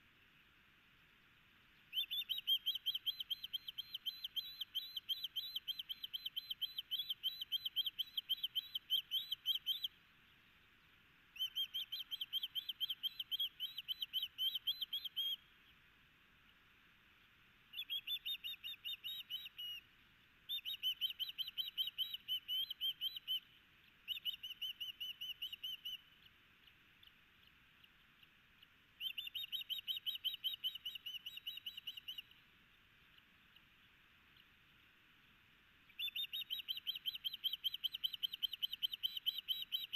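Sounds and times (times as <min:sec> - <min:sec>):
osprey whistled chirps: 0:01.9 - 0:10.0, 0:11.4 - 0:15.5, 0:17.7 - 0:19.8, 0:20.5 - 0:26.3, 0:29.0 - 0:32.4, 0:35.9 - 0:39.9.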